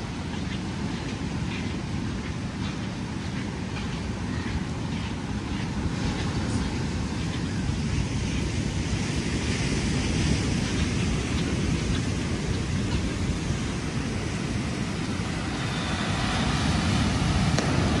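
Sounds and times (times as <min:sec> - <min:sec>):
wind buffeting microphone: 0:00.0 - 0:18.0
rain hiss: 0:06.4 - 0:18.0
breaking surf: 0:07.7 - 0:18.0.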